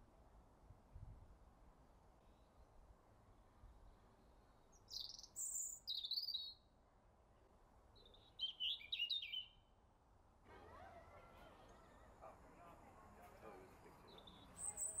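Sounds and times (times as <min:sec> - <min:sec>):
songbird singing: 0:04.6 - 0:06.6, 0:08.0 - 0:09.7, 0:13.6 - 0:15.0.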